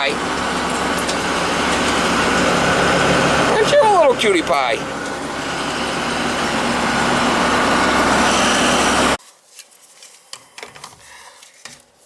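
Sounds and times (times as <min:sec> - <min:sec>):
vehicle engine and road noise: 0:00.0 - 0:09.2.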